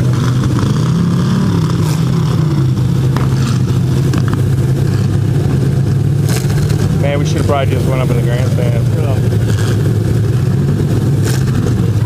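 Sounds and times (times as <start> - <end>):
car engines running loud: 0.0 - 12.0.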